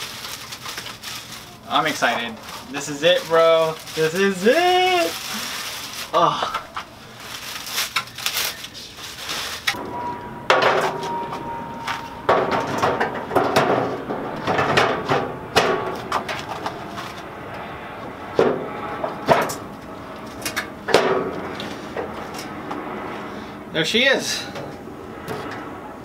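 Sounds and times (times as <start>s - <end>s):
metal clanks and knocks: 9.7s - 17.6s, 18.3s - 22.5s.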